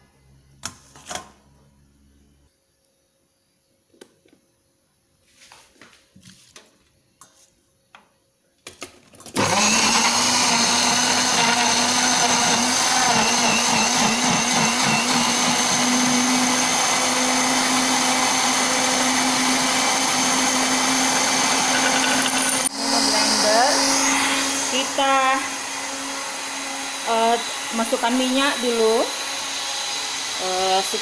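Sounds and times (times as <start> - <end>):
electric blender running: 9.3 - 31.0.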